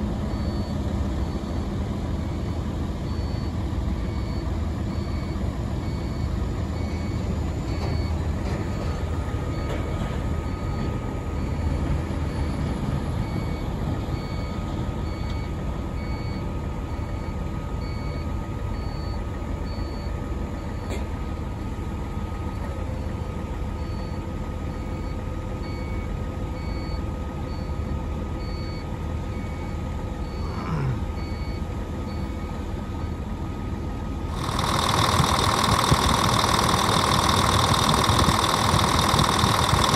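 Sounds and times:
excavator engine running: 0.0 - 39.9
steady hydraulic whine: 34.3 - 39.9
warning beeper: 34.3 - 39.9.

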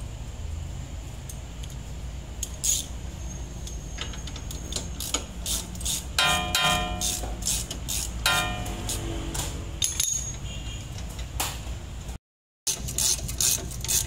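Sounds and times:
ratchet wrench clicking: 2.4 - 3.0, 3.6 - 10.4, 12.7 - 14.0
ringing pitched sound: 6.2 - 7.1, 8.3 - 8.8.

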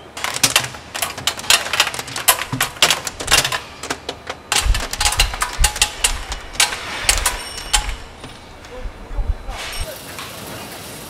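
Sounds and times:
metal bolts clattering: 0.0 - 9.9.

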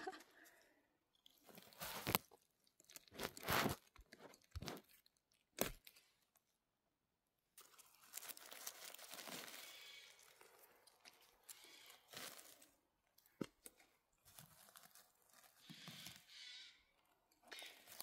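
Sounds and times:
dry leaf litter crunching: 1.5 - 3.9, 7.6 - 12.9, 13.6 - 16.6, 17.4 - 18.0.

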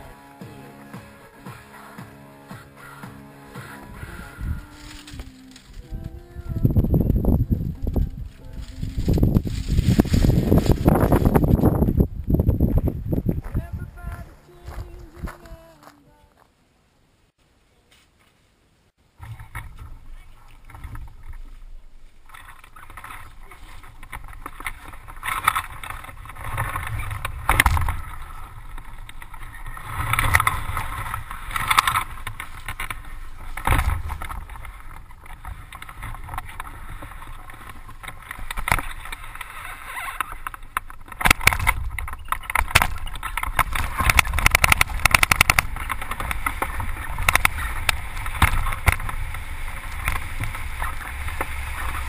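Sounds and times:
wind buffeting microphone: 3.8 - 15.7, 19.2 - 52.0.

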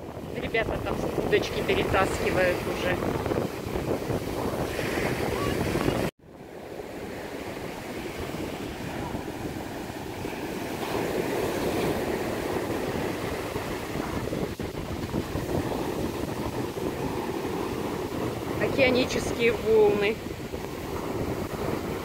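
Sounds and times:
surf waves washing up sand: 0.0 - 22.0.

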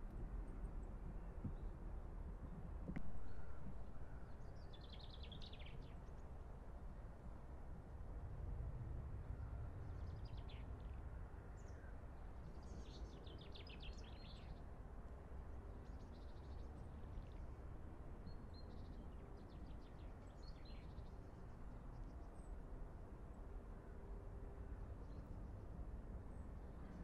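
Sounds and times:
low outdoor rumble: 0.0 - 4.9.

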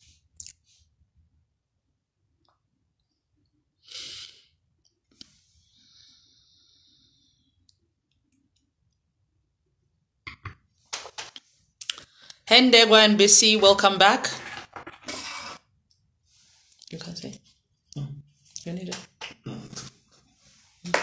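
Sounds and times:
soft breaths: 3.8 - 7.8.

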